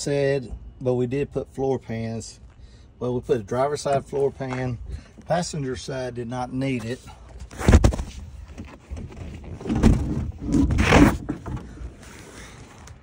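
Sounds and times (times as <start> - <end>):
phone rustling and scraping: 6.8 - 13.0.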